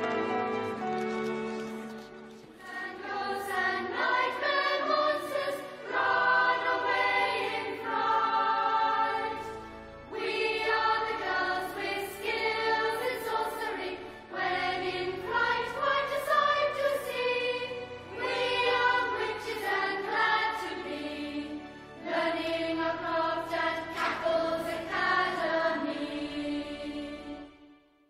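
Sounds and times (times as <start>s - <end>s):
theme music with choir singing: 0.0s - 28.0s.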